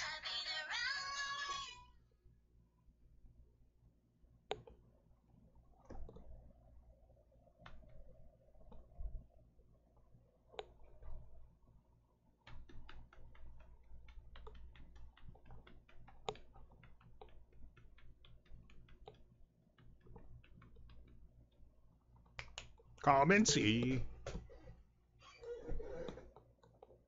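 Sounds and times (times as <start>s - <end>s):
keyboard typing clicks: 12.4s - 21.3s.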